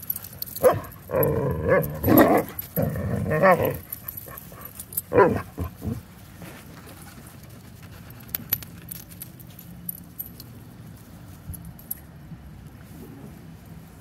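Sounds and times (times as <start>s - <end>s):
dogs growly barks and whines: 0.1s - 6.1s, 12.9s - 13.5s.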